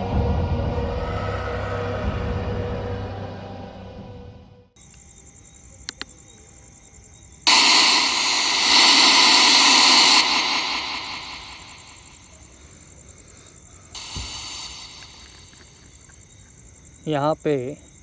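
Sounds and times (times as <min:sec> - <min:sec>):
radio static hissing: 0:07.4 - 0:13.0, 0:14.0 - 0:16.3
quick clicks: 0:14.0 - 0:16.2.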